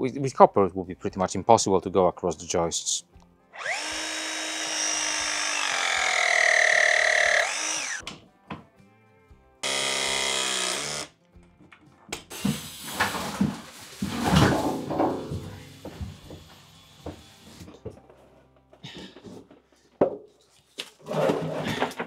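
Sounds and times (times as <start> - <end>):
power drill whine: 3.6 - 8.0, 9.6 - 11.1, 15.7 - 17.7.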